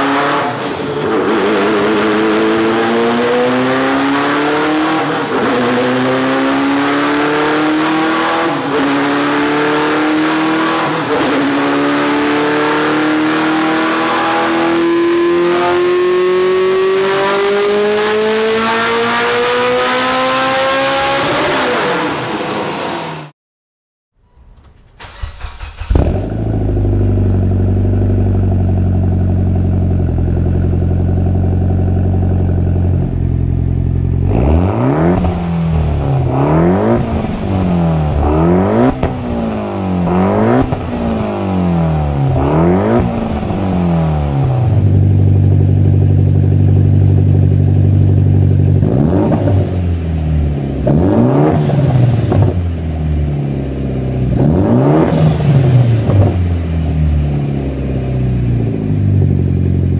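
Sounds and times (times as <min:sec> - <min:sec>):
car exhaust idling and revving: 0:25.6 - 0:59.9.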